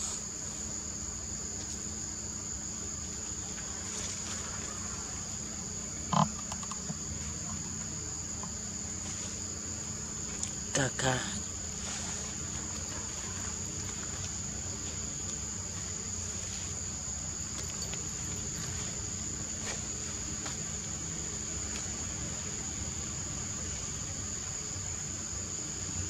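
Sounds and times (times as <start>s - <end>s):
high-pitched insect drone: 0.0s - 26.0s
faint ticks: 6.1s - 8.6s.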